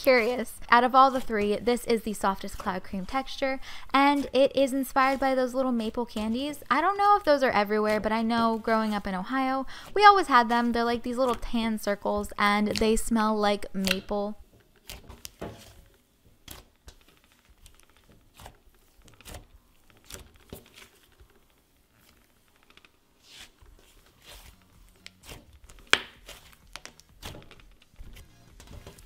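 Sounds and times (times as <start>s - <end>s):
slime crackling and popping: 13.7s - 29.0s.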